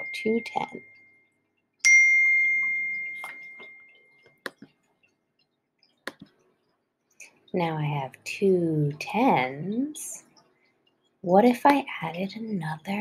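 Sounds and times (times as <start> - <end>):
bright chime: 1.8 - 4.2.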